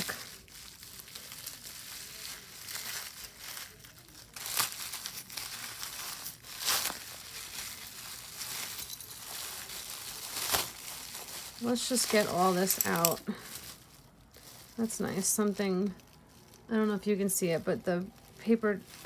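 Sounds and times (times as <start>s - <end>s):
plastic wrap crinkling: 0.0s - 19.0s.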